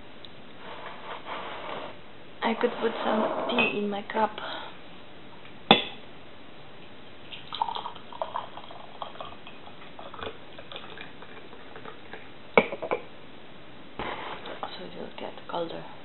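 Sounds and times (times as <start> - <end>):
tea pouring into cup: 7.3 - 12.3.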